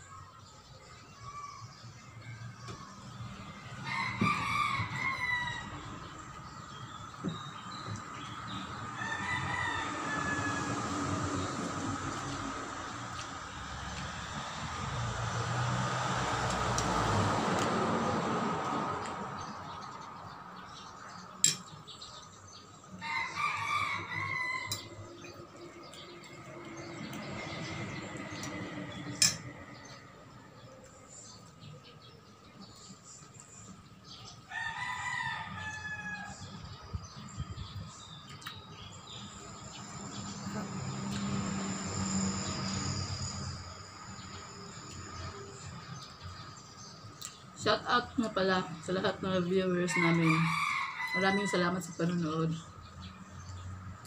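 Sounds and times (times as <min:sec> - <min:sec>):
passing vehicle: 0:01.9 - 0:35.7, 0:36.3 - 0:54.0
rooster crowing: 0:03.4 - 0:06.6, 0:08.5 - 0:11.8, 0:23.0 - 0:25.8, 0:34.5 - 0:36.6, 0:49.9 - 0:51.8.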